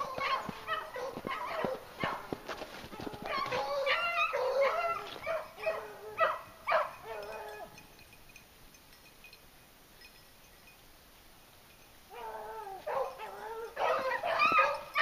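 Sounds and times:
hounds baying: 0.0s - 7.9s, 12.1s - 15.0s.

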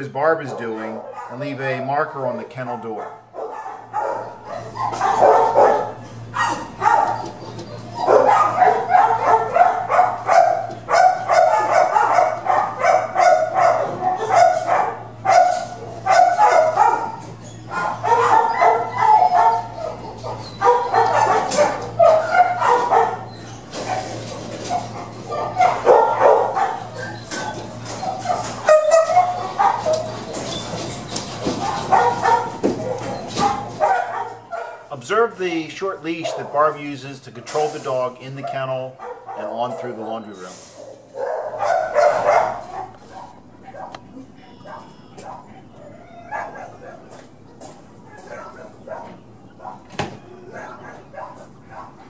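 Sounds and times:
dogs barking: 0.0s - 2.3s, 2.9s - 52.0s
steady low hum: 0.0s - 52.0s
dogs yipping and whimpering: 0.3s - 2.0s, 3.3s - 34.9s, 36.1s - 36.8s, 38.4s - 52.0s.

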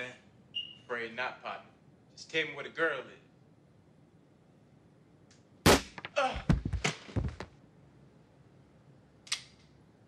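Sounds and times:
sharp knocks and thuds: 5.7s - 7.6s.

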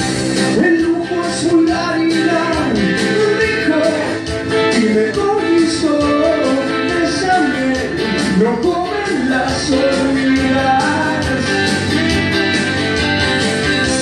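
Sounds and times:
guitar: 0.0s - 14.0s
steady drum beat: 0.0s - 14.0s
person singing: 0.4s - 14.0s.

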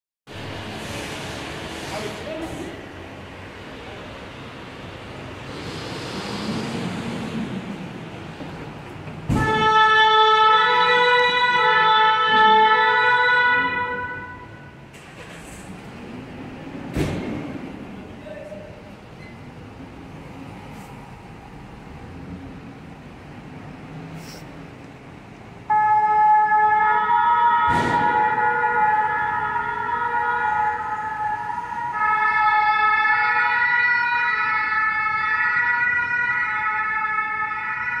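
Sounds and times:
engines running low: 4.3s - 9.5s, 14.9s - 18.2s
two-tone siren: 9.3s - 14.8s, 25.7s - 38.0s.

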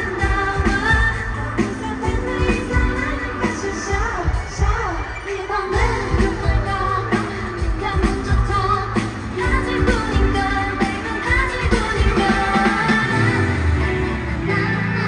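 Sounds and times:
women singing over pop beat: 0.0s - 15.0s.

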